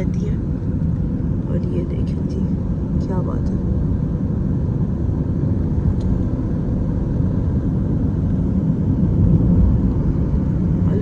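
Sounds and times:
car interior road and engine noise: 0.0s - 11.0s.

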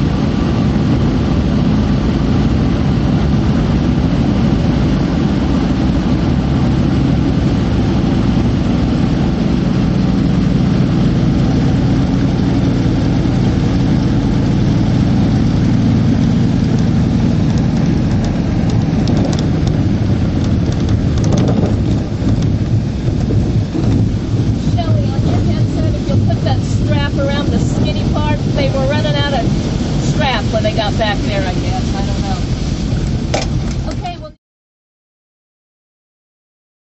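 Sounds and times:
small plane engine drone in cabin: 0.0s - 34.4s
short crackles: 15.4s - 26.4s.

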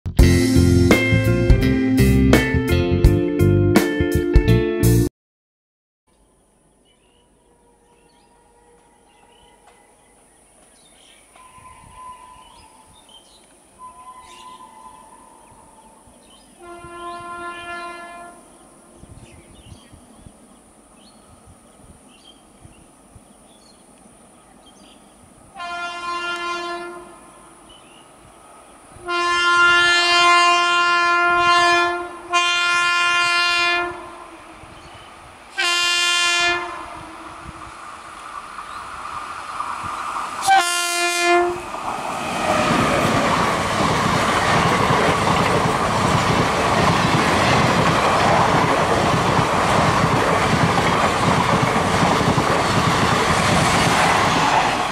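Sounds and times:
train running noise: 13.4s - 54.9s
locomotive horn blasts: 16.6s - 18.4s, 25.6s - 27.3s, 29.0s - 34.7s, 35.6s - 37.6s, 40.4s - 41.7s.

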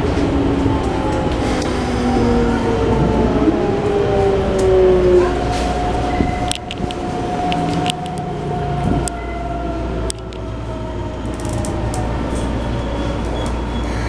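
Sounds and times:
train inverter whine: 0.0s - 14.0s
wheels clicking on rails: 5.4s - 9.3s, 11.2s - 13.8s.

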